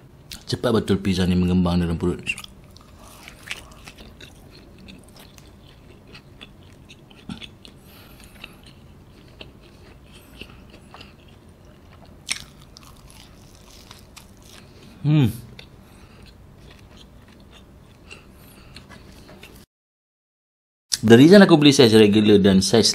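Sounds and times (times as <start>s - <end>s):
person chewing crunchy food: 2.3s - 19.6s.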